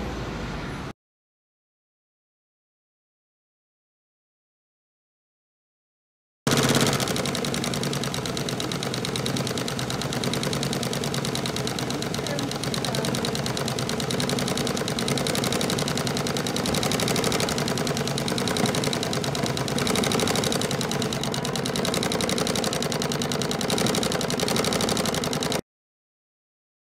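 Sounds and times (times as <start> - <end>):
sewing machine stitching: 6.5 - 25.6.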